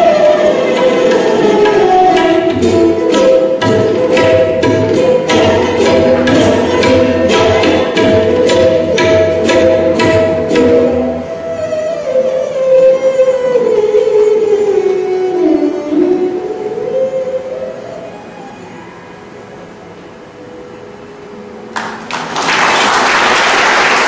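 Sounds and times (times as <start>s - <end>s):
bowed string instrument melody: 0.0s - 21.7s
drum beats: 0.9s - 11.0s.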